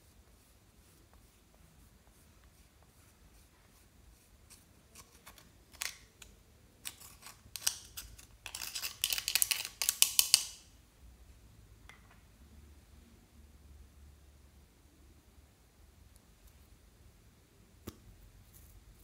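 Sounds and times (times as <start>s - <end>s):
metal tool scraping eyeshadow: 4.5s - 10.5s.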